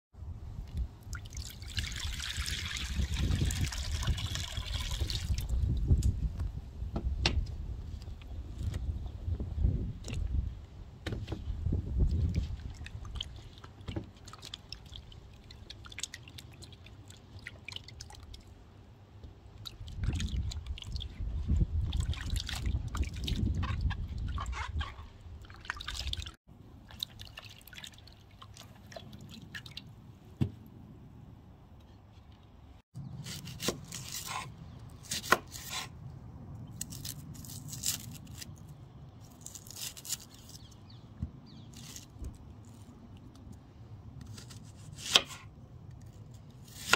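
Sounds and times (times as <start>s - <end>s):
water splashing in a bowl: 0.7s - 5.7s, 12.1s - 18.7s, 19.4s - 29.9s
dry onion skin crackling: 36.6s - 40.9s.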